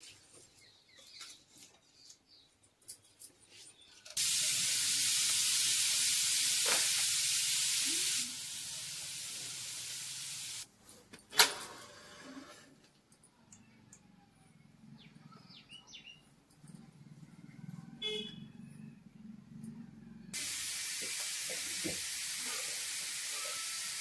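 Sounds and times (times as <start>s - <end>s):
batter sizzling in hot oil: 4.2s - 10.7s, 20.4s - 24.0s.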